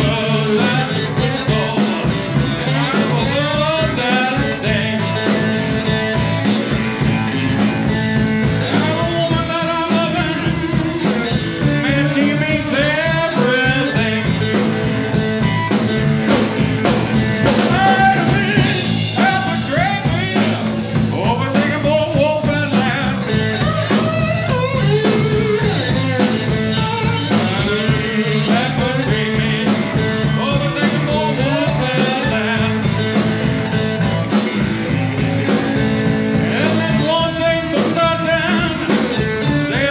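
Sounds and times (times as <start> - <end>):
bass guitar: 0.0 - 39.9
drums: 0.0 - 39.9
man singing: 0.0 - 39.9
slide guitar: 0.0 - 39.9.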